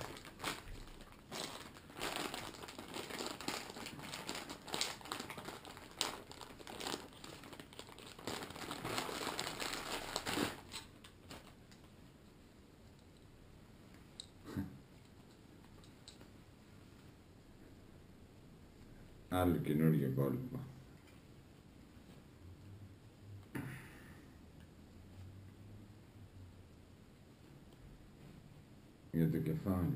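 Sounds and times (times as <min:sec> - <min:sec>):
plastic bags crinkling: 0:00.0 - 0:11.8.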